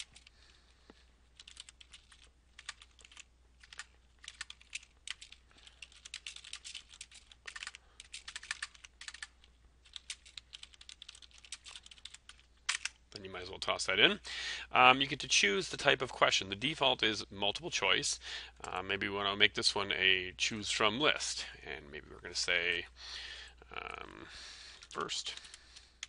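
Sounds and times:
computer keyboard typing: 0.0s - 0.3s, 1.3s - 13.0s.

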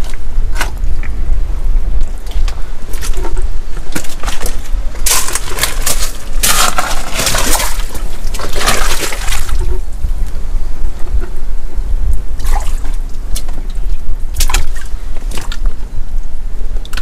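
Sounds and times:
wind buffeting microphone: 0.0s - 17.0s
splashing rushing water: 5.0s - 9.7s.

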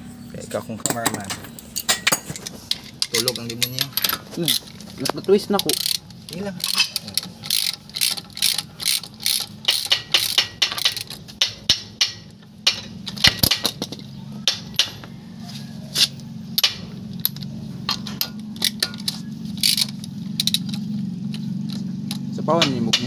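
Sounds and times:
steady low hum: 0.0s - 23.0s
socket ratchet clicking: 2.8s - 13.8s, 18.2s - 20.9s.

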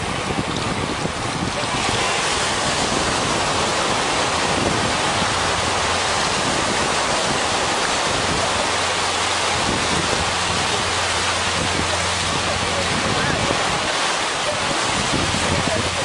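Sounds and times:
small waves breaking on sand: 0.0s - 16.0s.

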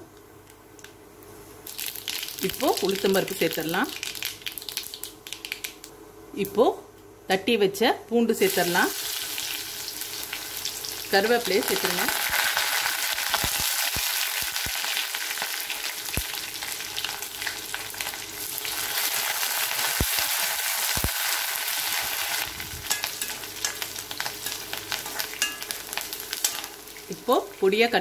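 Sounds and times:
food sizzling in hot oil: 1.6s - 5.8s, 8.4s - 28.0s
steel ladle stirring: 22.8s - 26.7s.

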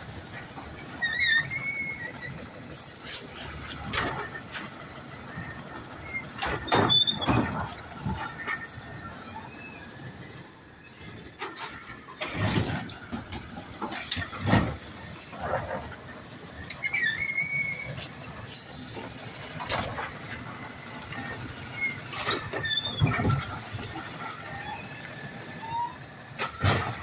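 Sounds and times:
garbage truck running: 0.0s - 27.0s
short high squeals: 1.0s - 2.9s, 5.4s - 8.2s, 9.1s - 12.5s, 16.7s - 18.0s, 24.5s - 27.0s.

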